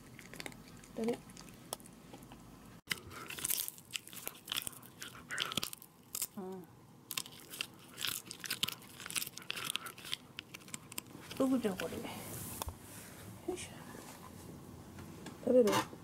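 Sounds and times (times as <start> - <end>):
dog chewing with wet crunches: 0.0 - 5.9, 7.1 - 12.0.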